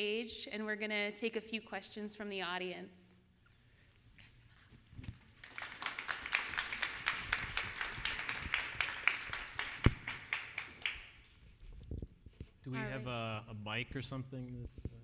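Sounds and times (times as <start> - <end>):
audience applauding: 5.2 - 11.2.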